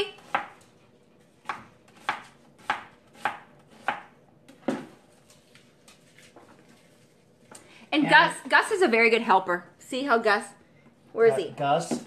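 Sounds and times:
knife chopping on cutting board: 0.1 - 0.7, 1.3 - 5.0.

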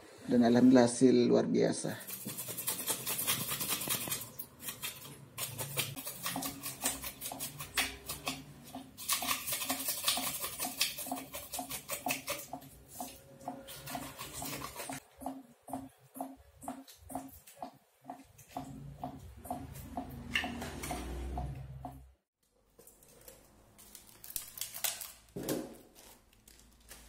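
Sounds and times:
knife scraping fish: 2.0 - 15.0.

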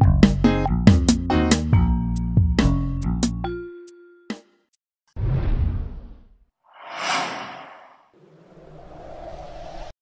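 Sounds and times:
whoosh sound effect: 6.8 - 10.0.

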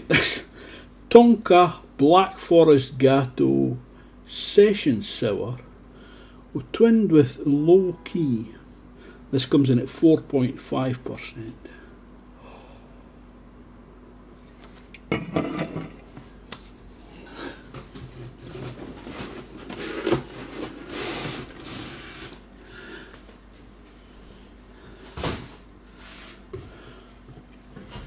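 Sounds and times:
cardboard rustling and scraping: 17.7 - 22.6.

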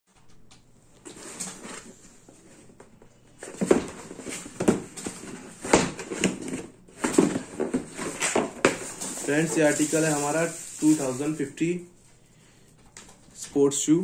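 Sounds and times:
cardboard box scraping and knocking: 3.4 - 11.1.

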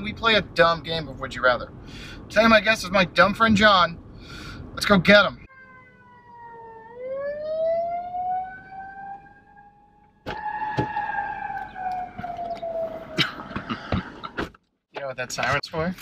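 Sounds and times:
siren wailing: 5.5 - 13.7
car door opening: 10.2 - 14.6.

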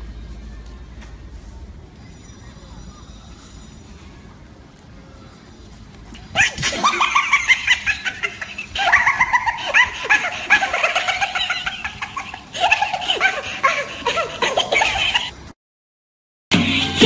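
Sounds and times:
high-pitched laughing: 6.2 - 15.5.

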